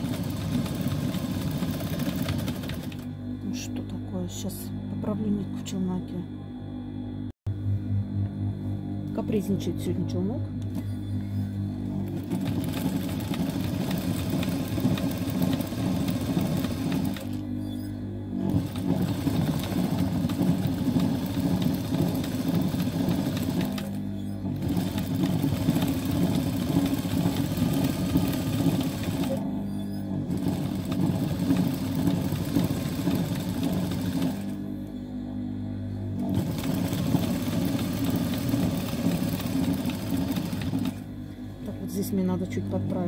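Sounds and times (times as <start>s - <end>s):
sewing machine stitching: 0.0s - 3.1s, 11.9s - 17.4s, 18.4s - 34.6s, 36.2s - 41.1s.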